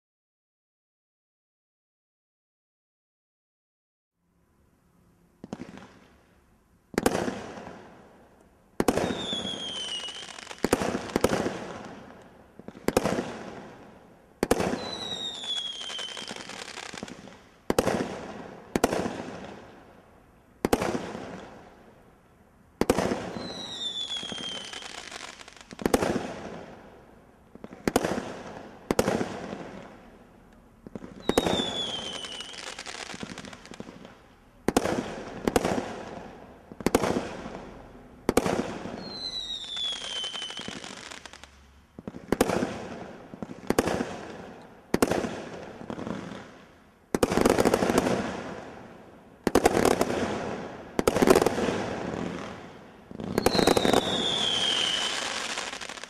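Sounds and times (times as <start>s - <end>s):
firework shots exploding: 6.9s - 7.9s, 8.8s - 19.7s, 20.6s - 21.7s, 22.8s - 26.8s, 27.6s - 30.1s, 30.8s - 46.5s, 47.1s - 48.8s, 49.4s - 56.0s
falling firework whistle: 8.8s - 11.4s, 14.5s - 17.1s, 23.0s - 25.8s, 31.1s - 33.8s, 38.8s - 41.5s, 53.2s - 56.0s.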